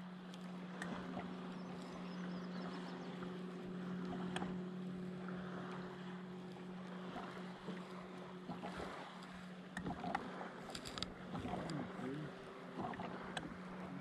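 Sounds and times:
boat motor humming: 0.0 - 14.0
wind: 0.0 - 14.0
light clicks: 9.7 - 11.9.

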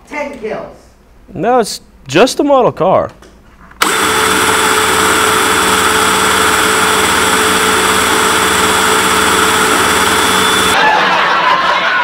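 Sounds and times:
steady motor drone: 3.8 - 10.8.

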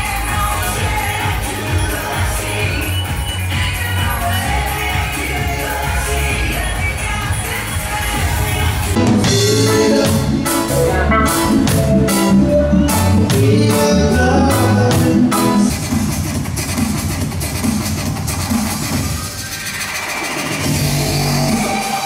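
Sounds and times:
person singing: 0.0 - 15.7
live band playing: 0.0 - 22.0.

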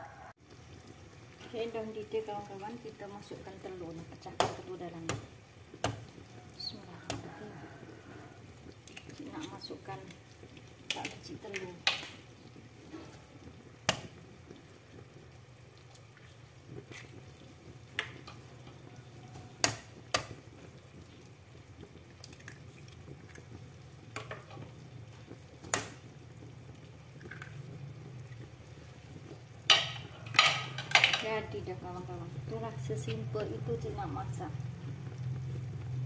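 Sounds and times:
low steady hum: 0.0 - 36.0
water simmering in pot: 0.0 - 36.0
eggs cracking on pot edge: 4.2 - 7.3, 8.6 - 15.2, 15.8 - 20.8, 21.8 - 26.1, 27.1 - 28.5, 29.1 - 31.5.

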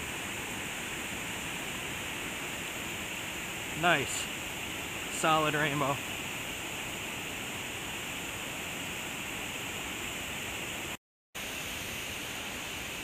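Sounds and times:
waterfall and creek rushing: 0.0 - 13.0.

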